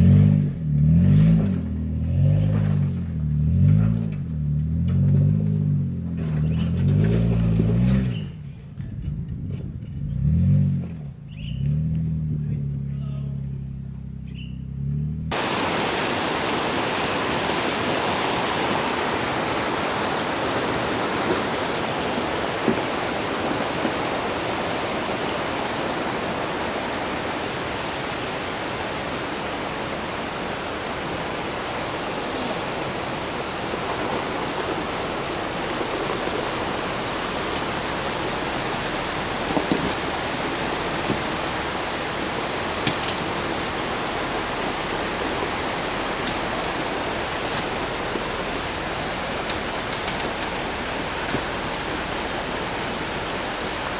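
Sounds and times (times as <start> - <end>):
car engine running: 0.0 - 15.6, 29.2 - 53.9
creek rushing over rocks: 15.3 - 53.9.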